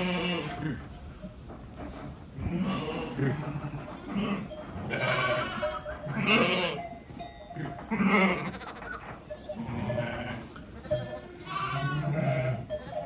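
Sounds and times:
sheep bleating: 0:02.4 - 0:06.8, 0:07.6 - 0:13.0.

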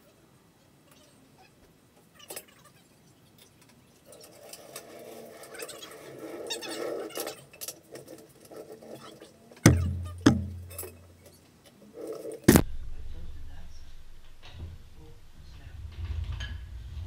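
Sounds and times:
floor jack rolling on concrete: 0:04.1 - 0:12.5
heavy knocks: 0:09.7 - 0:11.1.

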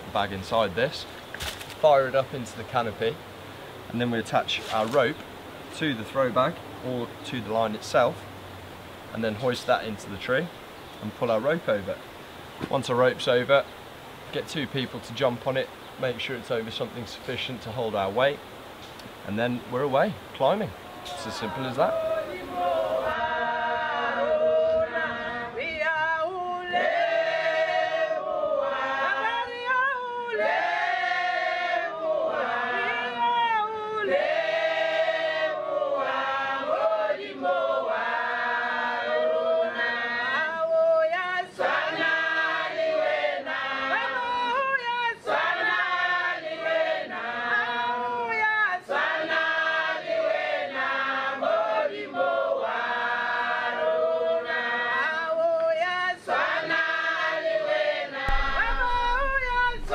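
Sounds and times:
choir singing: 0:20.4 - 0:59.9.

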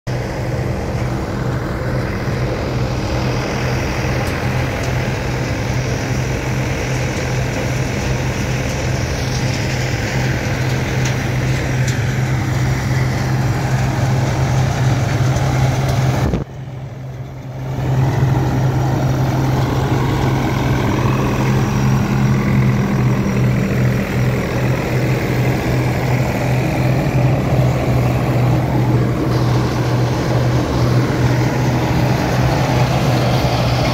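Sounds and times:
diesel tractor engine running: 0:00.1 - 0:33.9.

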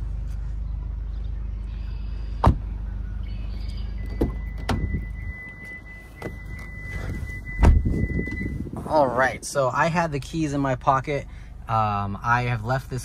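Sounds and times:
steady low rumble: 0:00.0 - 0:13.0
car door thunk: 0:02.4 - 0:02.7, 0:04.0 - 0:08.9.

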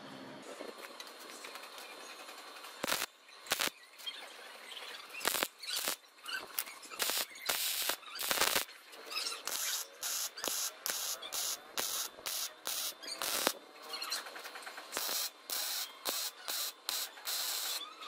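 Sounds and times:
welder arc crackling and hissing: 0:02.7 - 0:03.8, 0:04.5 - 0:13.6, 0:14.9 - 0:17.8.

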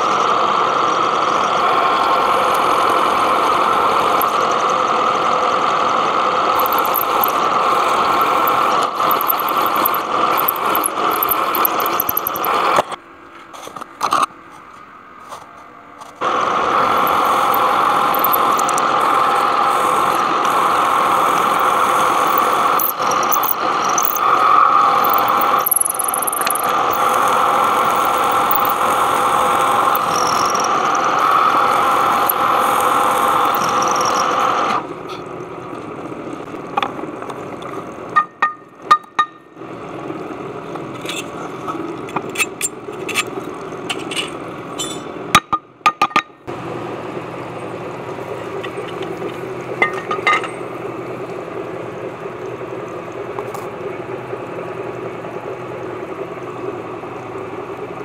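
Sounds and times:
milling machine cutting metal: 0:00.0 - 0:13.0, 0:16.2 - 0:35.4
machine running quietly: 0:00.0 - 0:13.8, 0:14.5 - 0:45.3, 0:46.5 - 0:58.0.

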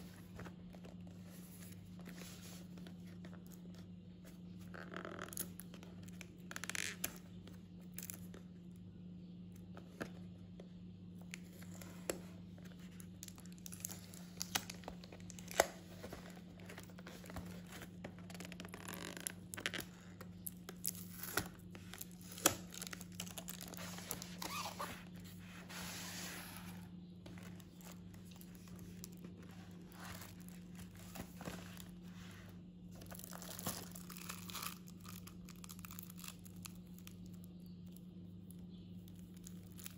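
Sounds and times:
steady low hum: 0:00.0 - 0:39.9
plastic wrap crinkling: 0:12.7 - 0:25.4, 0:32.9 - 0:37.3.

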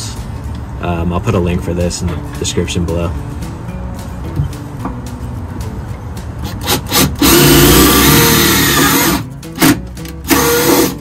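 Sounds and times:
impact driver driving screw into steel: 0:06.4 - 0:11.0.

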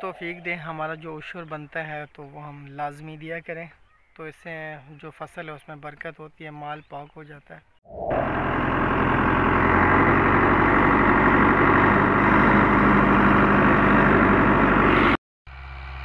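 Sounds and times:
tractor diesel engine running: 0:07.9 - 0:16.0.

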